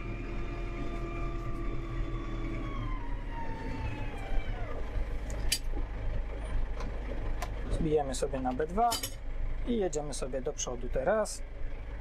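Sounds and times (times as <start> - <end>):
tractor engine hum: 0.0 - 12.0.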